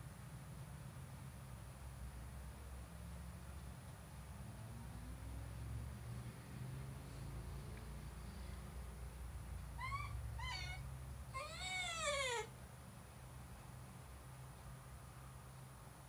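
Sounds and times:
dog howling: 9.8s - 10.8s, 11.4s - 12.5s.

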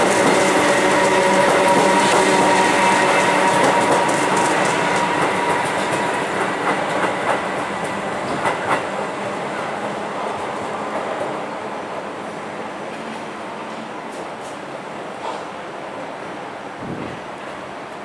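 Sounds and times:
train wheels clicking over rail joints: 0.0s - 9.0s
electric train hum: 0.0s - 18.0s.

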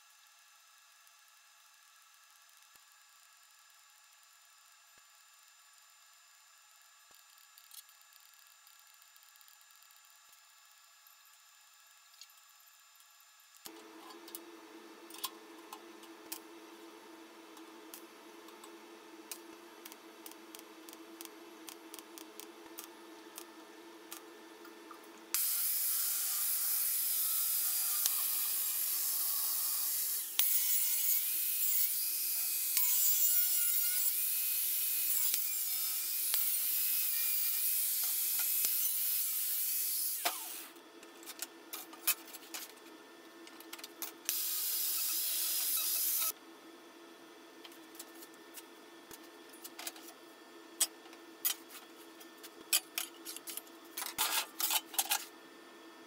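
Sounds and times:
angle grinder grinding steel: 44.3s - 46.3s.

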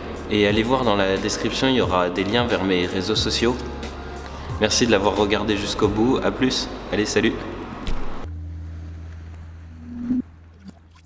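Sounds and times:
low hum: 7.6s - 11.0s
short swelling tone: 8.3s - 10.4s
soft blips: 8.3s - 11.0s.

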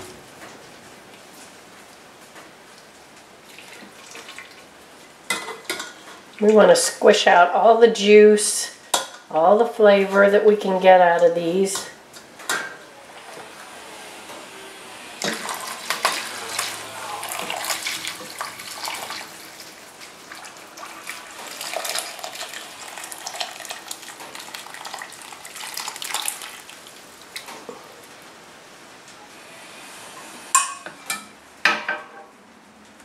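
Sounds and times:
metal pans clinking: 5.3s - 6.2s, 15.2s - 19.2s
broth pouring through strainer: 15.2s - 27.3s.

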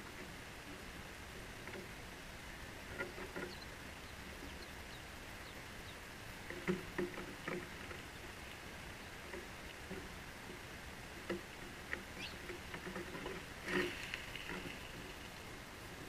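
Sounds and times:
steady outdoor hiss: 0.0s - 16.0s
faint high bird peeps: 3.4s - 6.0s, 12.2s - 12.4s.

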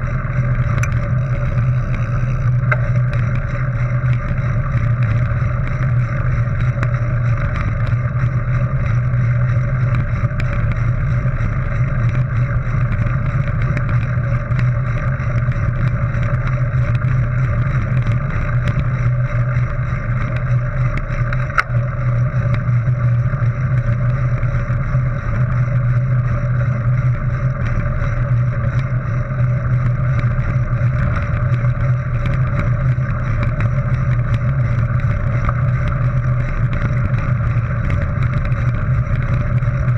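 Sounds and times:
bike tyres rumbling on gravel: 0.0s - 39.9s
small ticks and rattles: 0.0s - 39.9s.

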